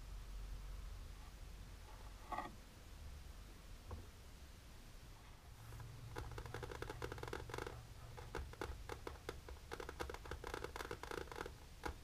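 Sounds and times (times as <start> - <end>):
fingernails tapping and scratching: 6.1 - 12.0.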